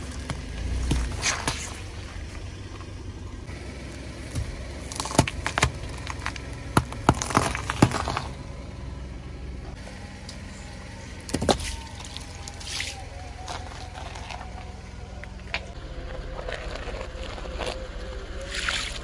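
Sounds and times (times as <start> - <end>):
tyre crushing objects: 0.0 - 3.0, 4.2 - 8.4, 11.2 - 14.7
carton crackling under tyre: 0.0 - 8.8, 11.1 - 19.0
low engine rumble: 0.0 - 19.0.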